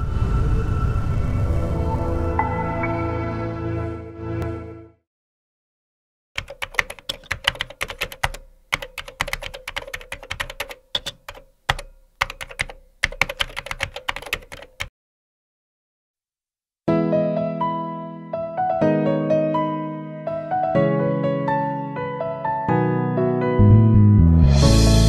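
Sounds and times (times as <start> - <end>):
music: 0.0 - 5.0, 16.9 - 25.0
keyboard typing clicks: 6.4 - 14.9.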